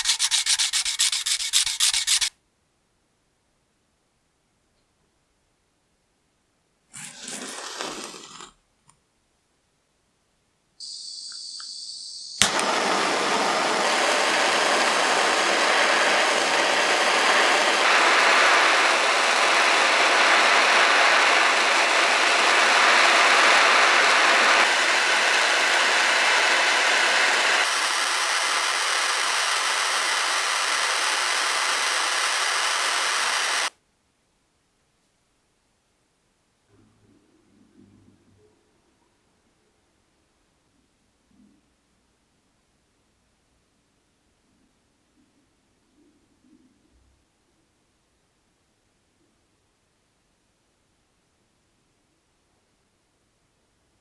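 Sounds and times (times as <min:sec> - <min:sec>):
gas torch hissing: 0:00.0 - 0:02.3, 0:07.0 - 0:08.5, 0:10.8 - 0:33.7
torch flame rushing: 0:07.0 - 0:08.5, 0:12.2 - 0:33.7
torch igniter click: 0:10.8 - 0:18.8.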